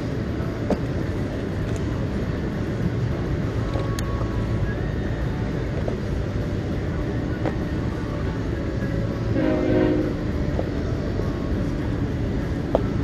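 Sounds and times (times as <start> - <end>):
wind and open water rumble: 0.0 - 9.4, 10.1 - 13.0
horn chord: 9.3 - 10.3.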